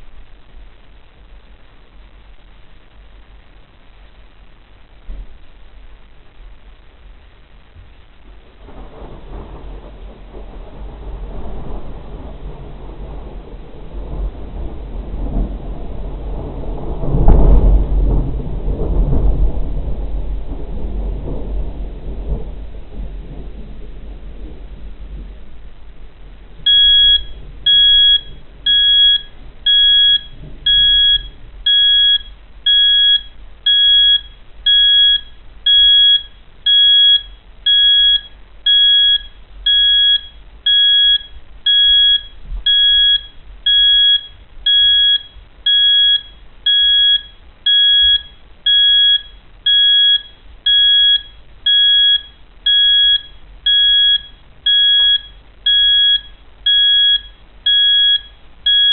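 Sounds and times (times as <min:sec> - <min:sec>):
alarm clock beeping: 0:26.7 - 0:58.9.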